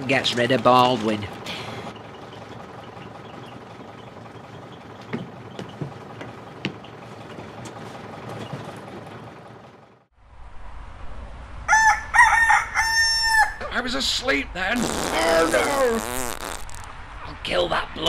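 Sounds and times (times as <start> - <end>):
vehicle engine idling: 0.0 - 10.2.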